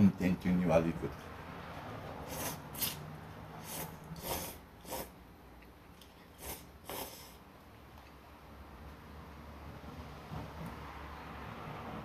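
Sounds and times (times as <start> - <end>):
person slurping noodles: 2.2 - 3.0, 3.6 - 5.2, 6.2 - 7.5.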